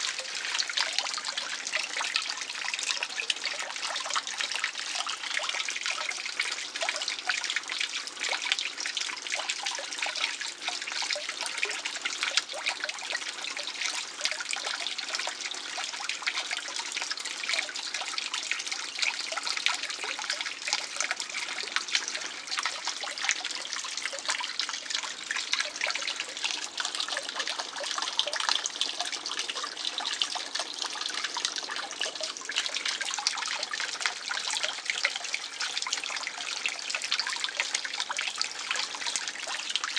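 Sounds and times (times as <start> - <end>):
water trickling into pond: 0.0 - 39.9.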